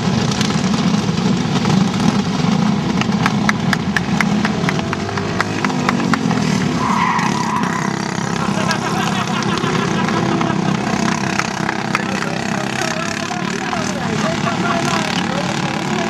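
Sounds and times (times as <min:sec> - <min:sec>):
go-kart engine running: 0:00.0 - 0:16.0
hands clapping quickly: 0:11.4 - 0:12.5.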